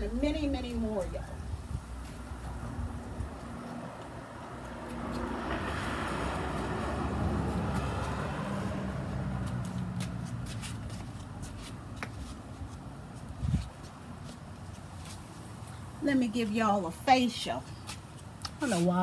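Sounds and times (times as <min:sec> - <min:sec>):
footsteps on concrete: 0:00.6 - 0:16.0, 0:17.4 - 0:19.0
car passing: 0:01.1 - 0:12.0.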